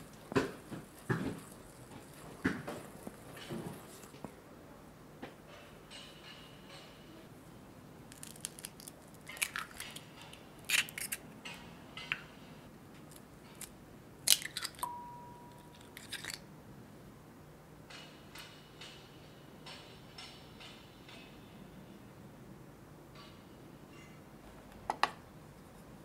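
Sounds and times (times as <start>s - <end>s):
eggshells cracking on glass bowl: 8.1s - 10.0s, 14.2s - 14.9s, 15.6s - 16.4s
thin ringing tone: 14.8s - 15.8s.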